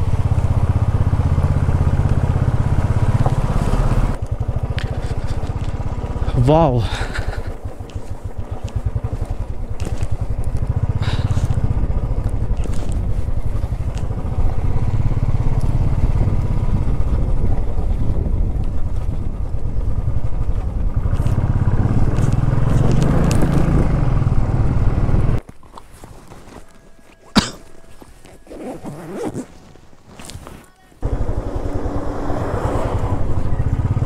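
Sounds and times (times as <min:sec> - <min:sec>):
motorcycle exhaust beat: 0:00.0 - 0:25.4, 0:31.0 - 0:34.0.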